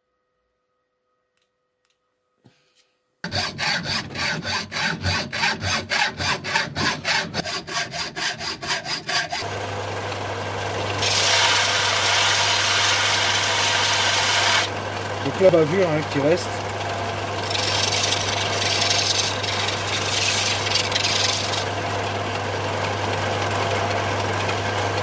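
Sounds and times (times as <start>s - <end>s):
hacksaw cutting copper pipe: 3.2s - 9.5s, 11.0s - 14.7s, 17.4s - 21.7s
pipe grinding on sander: 3.2s - 9.5s, 11.0s - 16.7s, 17.3s - 21.9s.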